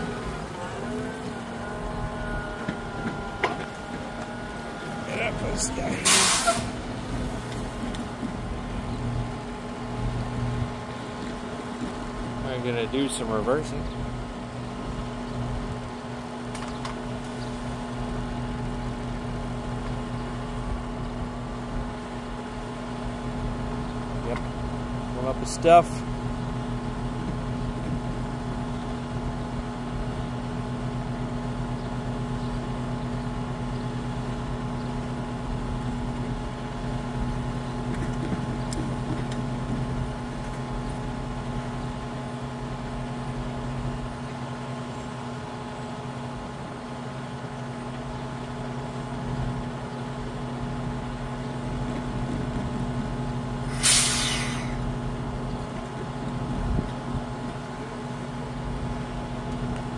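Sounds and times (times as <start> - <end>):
truck idling hum: 0.0 - 59.9
sharp burst of air hiss: 6.0 - 6.8, 53.7 - 54.8.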